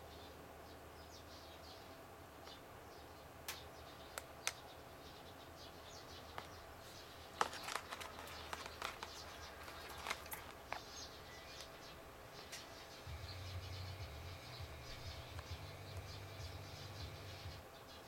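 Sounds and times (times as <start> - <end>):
low steady hum: 0.0 - 18.0
handling rustles: 6.3 - 11.7
small clicks: 7.4 - 10.9.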